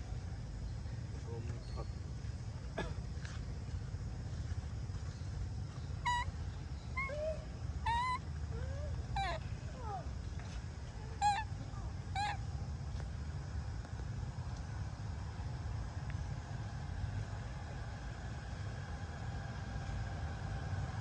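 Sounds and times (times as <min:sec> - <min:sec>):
steady low rumble: 0:00.0 - 0:21.0
macaque squeaky calls: 0:06.0 - 0:06.3, 0:06.9 - 0:10.0, 0:11.2 - 0:12.4.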